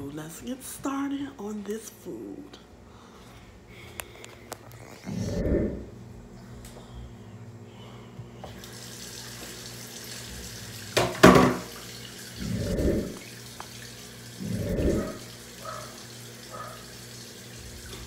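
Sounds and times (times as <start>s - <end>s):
steady low hum: 0.0s - 8.6s, 12.2s - 15.9s
muffled dog barking: 14.7s - 16.9s.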